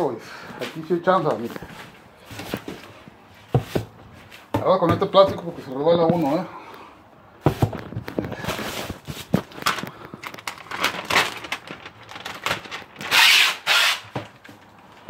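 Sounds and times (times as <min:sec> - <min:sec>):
plastic sheet crinkling: 0:07.8 - 0:13.3.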